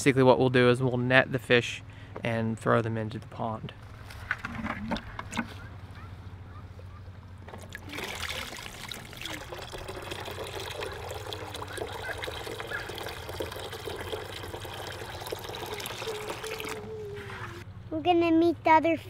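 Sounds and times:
water pouring from a bucket: 7.6 - 16.8.

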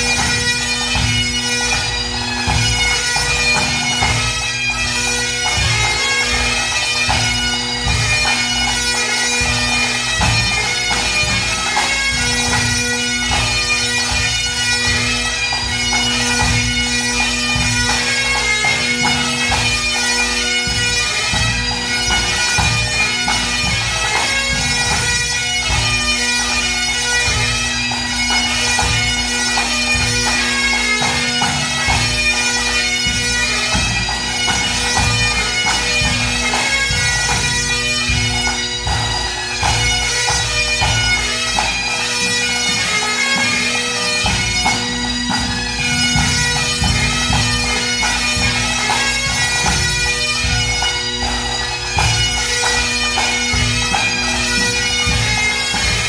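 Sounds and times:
bagpipes with drones: 0.0 - 56.0
drums beating time: 44.2 - 56.0.

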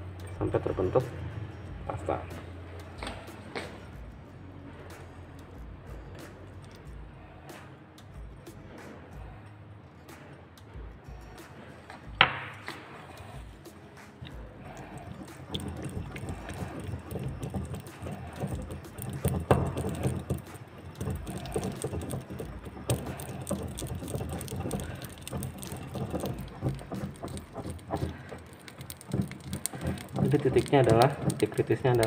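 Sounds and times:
pestle grinding in mortar: 14.2 - 32.0.

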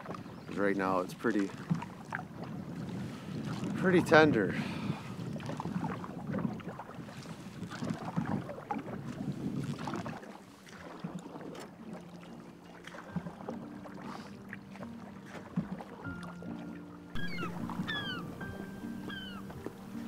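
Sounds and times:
paddle strokes: 0.0 - 20.0
water splashing against hull: 0.0 - 20.0
wind on microphone: 1.6 - 10.2.

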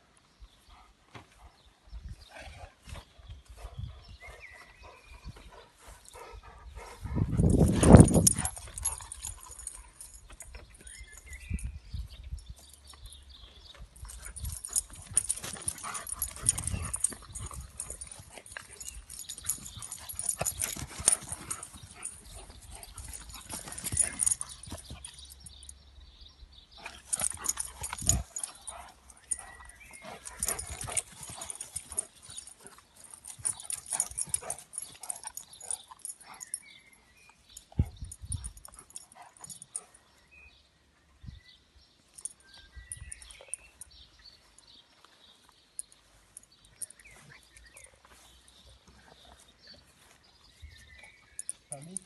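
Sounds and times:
dog breathing and snuffling: 14.0 - 25.3.

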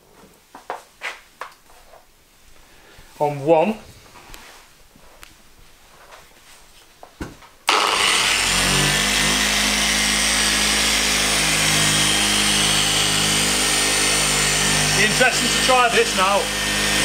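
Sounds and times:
electric polisher running: 7.7 - 17.0.

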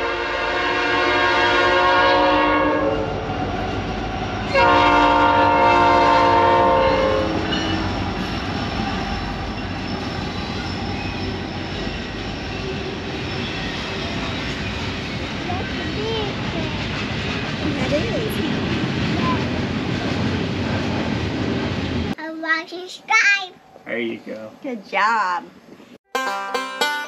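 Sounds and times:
train air horn blasts: 0.0 - 3.3, 4.5 - 7.9
train cars rumbling and clattering: 1.2 - 22.2.

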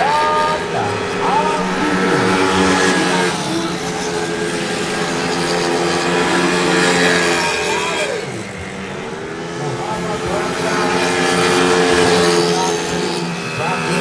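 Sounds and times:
motorcycle engines revving: 0.0 - 14.0.

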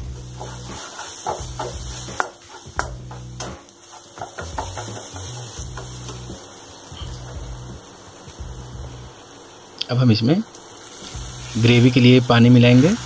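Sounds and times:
soft background music: 0.0 - 9.2, 10.9 - 13.0
spatula scraping a pan: 0.1 - 6.4, 10.8 - 13.0.

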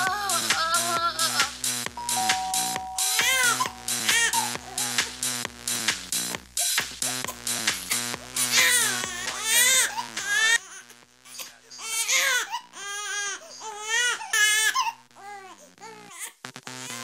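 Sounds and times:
background music: 0.0 - 10.5.

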